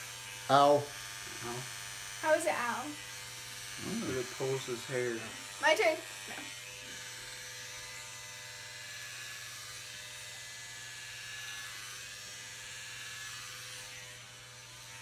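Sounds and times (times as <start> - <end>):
electric hair clippers buzzing: 0.0 - 15.0.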